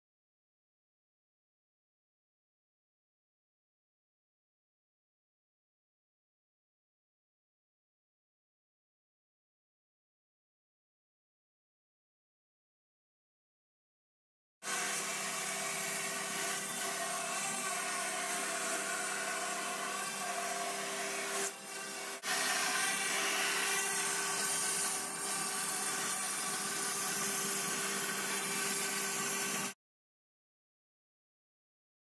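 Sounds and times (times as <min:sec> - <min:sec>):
cutter hissing through foam: 0:14.7 - 0:29.8.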